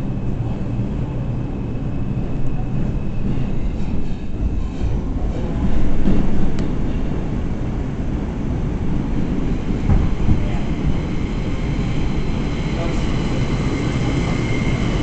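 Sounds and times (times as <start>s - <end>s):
subway car rumbling on track: 0.0s - 15.0s.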